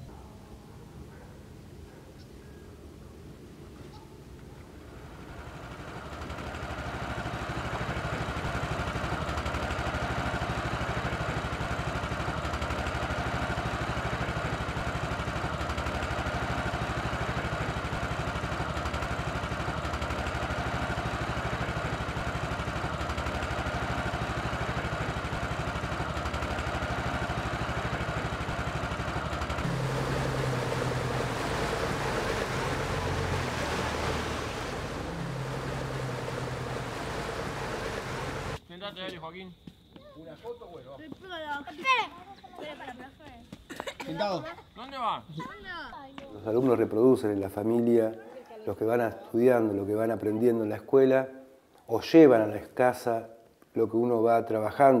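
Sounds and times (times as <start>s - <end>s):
water noise: 4.4s - 38.6s
boat engine running: 4.6s - 38.6s.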